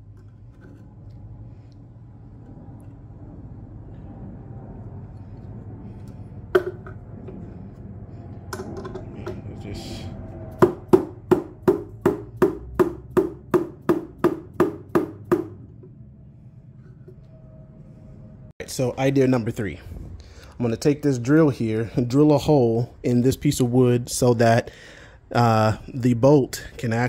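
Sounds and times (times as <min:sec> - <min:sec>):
hammer tapping metal: 0:10.5 - 0:15.6.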